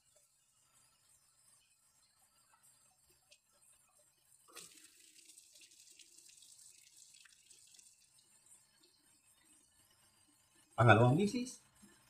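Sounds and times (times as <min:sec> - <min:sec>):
water splashing from drain pipe: 0:04.5 - 0:08.9.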